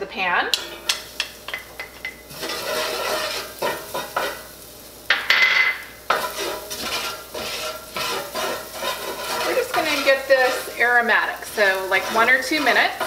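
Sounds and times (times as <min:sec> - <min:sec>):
garlic sizzling in grease: 0:00.0 - 0:13.0
kitchenware clattering: 0:00.5 - 0:04.4, 0:05.1 - 0:10.7.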